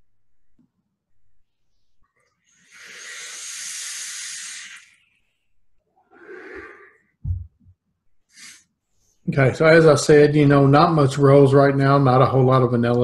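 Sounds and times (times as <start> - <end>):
air drawn through a vape: 2.4 - 5.2, 6.1 - 7.0
vapour exhaled hiss: 2.5 - 5.0, 6.1 - 7.0
low thumps: 7.2 - 7.7.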